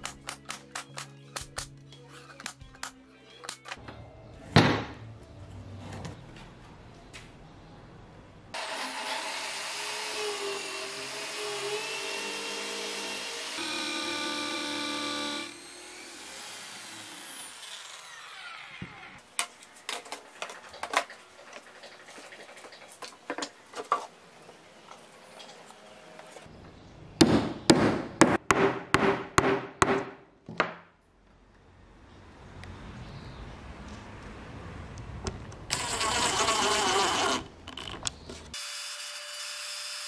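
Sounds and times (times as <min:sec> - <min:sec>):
power drill boring into wood: 0:08.6 - 0:19.0, 0:35.7 - 0:37.9, 0:38.6 - 0:40.0.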